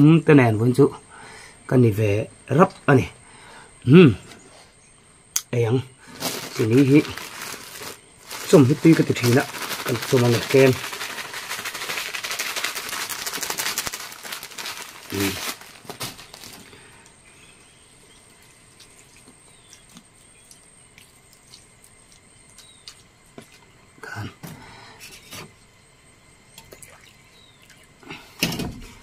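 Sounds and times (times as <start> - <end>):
plastic bag crinkling: 6.1 - 17.0.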